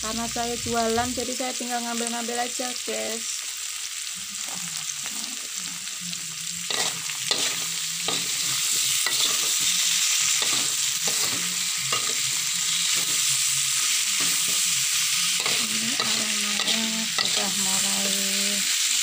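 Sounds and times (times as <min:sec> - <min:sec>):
stir-fry sizzling in a wok: 0:00.0 - 0:19.0
metal turner scraping a pan: 0:06.7 - 0:13.3.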